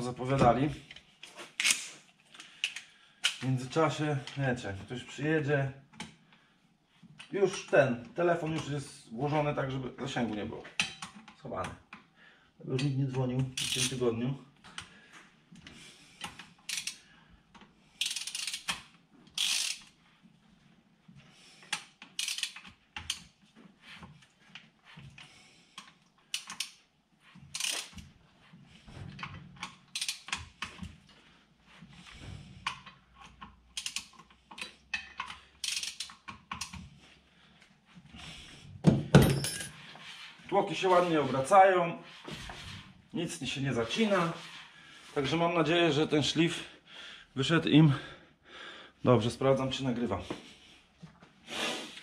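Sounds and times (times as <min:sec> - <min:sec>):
ratchet wrench clicking: 0:16.7 - 0:17.0, 0:18.0 - 0:18.8, 0:19.4 - 0:19.9, 0:22.2 - 0:23.2, 0:27.6 - 0:27.9, 0:30.0 - 0:30.4, 0:33.7 - 0:34.2, 0:35.1 - 0:36.7.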